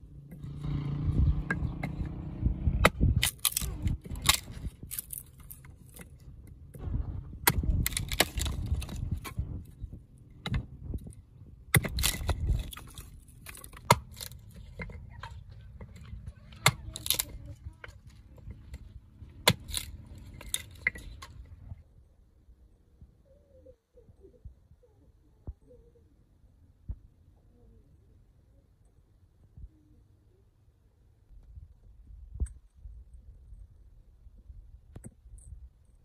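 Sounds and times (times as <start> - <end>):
hatchet chopping wood: 1.4 - 6.1, 7.4 - 9.5, 11.7 - 17.4, 18.4 - 21.4
wood cracking and splintering: 2.8 - 21.8.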